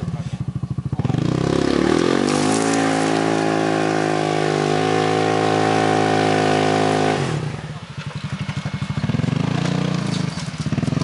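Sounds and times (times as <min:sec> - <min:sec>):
engine revving hard under load: 0:01.0 - 0:07.8.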